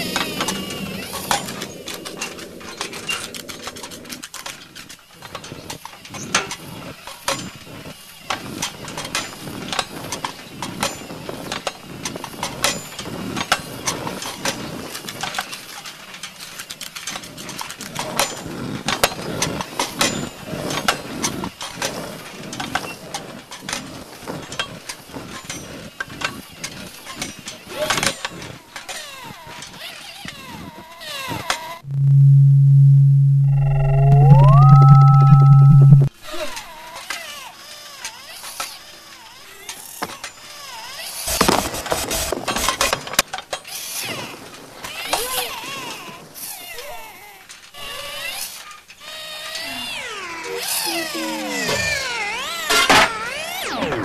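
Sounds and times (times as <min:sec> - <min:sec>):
low hum: 0:31.8 - 0:36.1.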